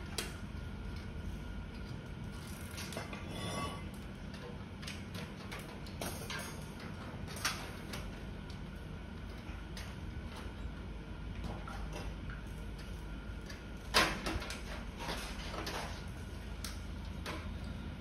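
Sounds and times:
metal parts clicking and clinking: 4.8 - 8.0.

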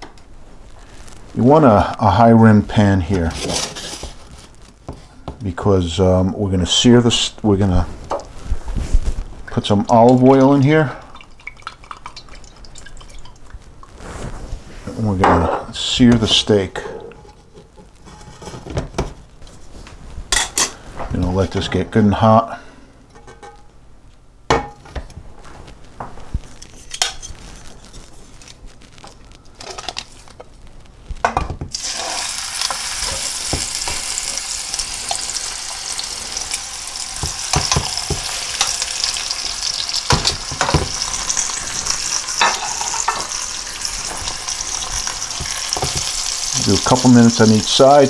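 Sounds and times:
steak sizzling in oil: 31.7 - 48.0.

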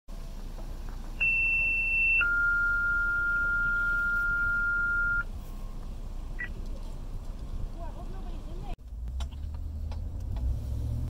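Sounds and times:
high-pitched beep: 1.2 - 5.3
lower steady tone: 1.2 - 5.3.

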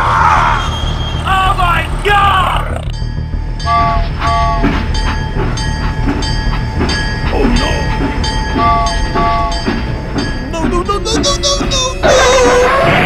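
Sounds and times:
toy train chugging: 3.8 - 12.8.

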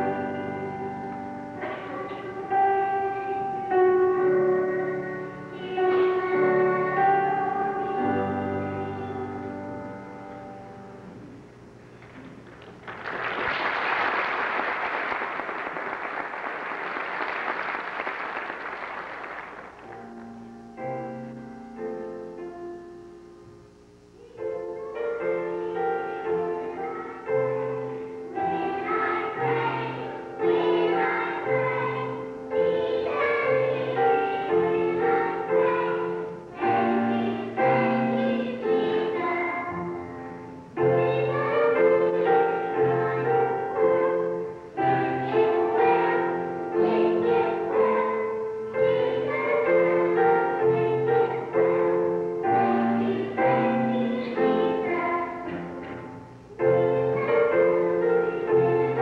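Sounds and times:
children's choir singing: 0.0 - 11.1, 24.3 - 59.0
piano: 0.0 - 59.0
audience applause: 12.0 - 20.1.

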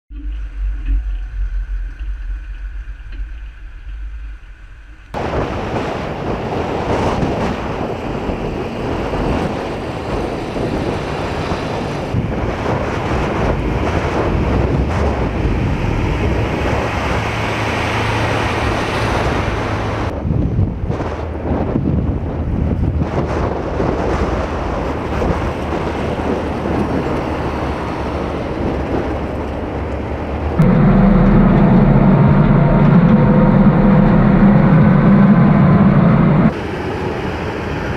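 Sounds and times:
low truck engine rumble: 0.1 - 37.9
wind buffeting microphone: 0.1 - 37.9
armoured vehicles driving past: 5.1 - 20.1, 24.3 - 37.9.

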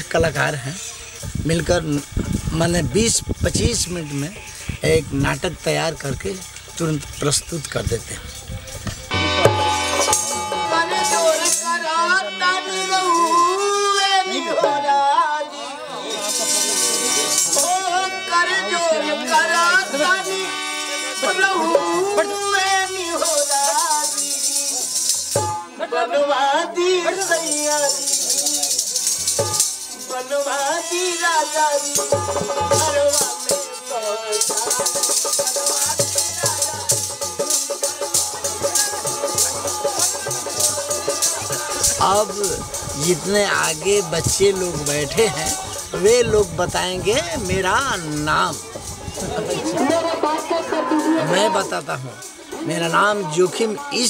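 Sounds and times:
tambourines jingling: 0.0 - 11.9, 16.1 - 18.2, 19.2 - 25.8, 27.1 - 54.0
man singing into microphone: 10.4 - 16.3, 17.5 - 25.0, 25.6 - 28.9, 29.9 - 37.3, 38.0 - 54.0.

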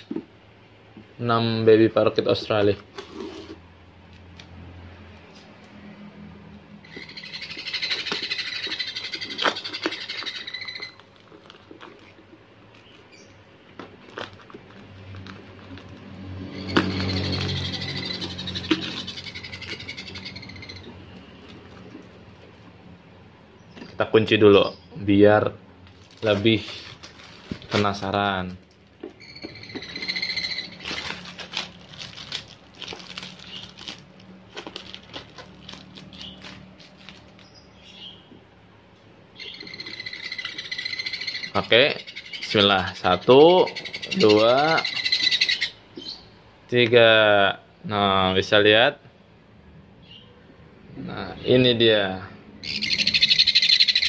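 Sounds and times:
baby parrots begging calls: 6.8 - 11.0, 16.4 - 21.1, 29.2 - 31.2, 39.4 - 46.3, 52.6 - 54.0
birds scratching and shuffling: 28.8 - 37.7
long high bird call: 39.4 - 42.5.

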